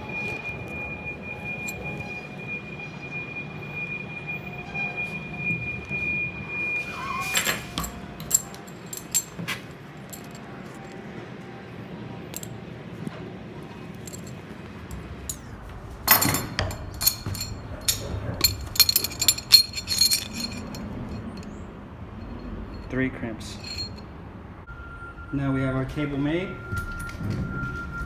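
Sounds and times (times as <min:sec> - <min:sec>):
metallic clinks: 0:01.5 - 0:02.1, 0:07.4 - 0:11.1, 0:12.3 - 0:12.6, 0:13.9 - 0:24.1.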